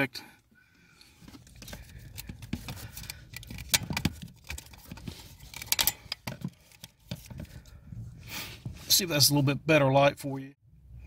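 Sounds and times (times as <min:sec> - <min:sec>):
handling rustles and clicks: 0:01.0 - 0:07.8.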